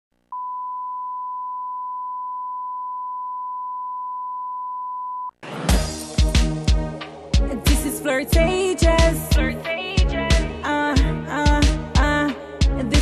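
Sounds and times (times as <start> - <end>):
sine test tone: 0.3 - 5.3
hip-hop beat with heavy kick drums: 5.6 - 13.0.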